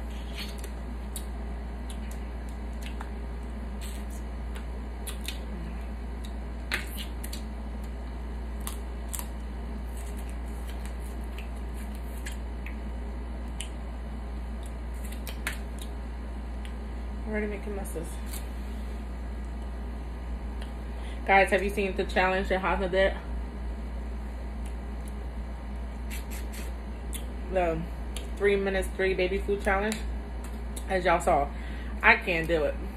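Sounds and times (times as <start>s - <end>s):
chewing and mouth sounds: 0.0s - 13.8s, 14.5s - 16.8s, 26.0s - 27.4s, 28.1s - 28.4s.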